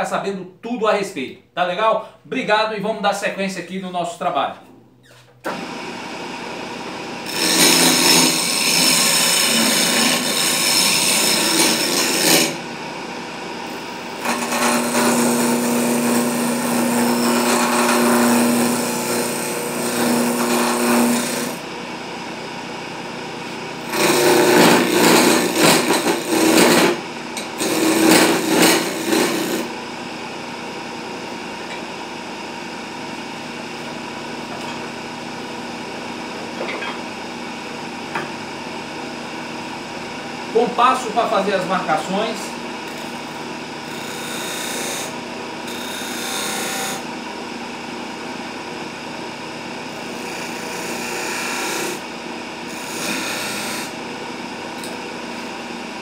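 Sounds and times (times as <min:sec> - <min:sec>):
lathe motor running: 0:05.5 - 0:47.4, 0:49.9 - 0:51.9
tool rasping on wood: 0:07.3 - 0:12.6, 0:14.2 - 0:21.6, 0:23.9 - 0:29.7, 0:52.7 - 0:53.9.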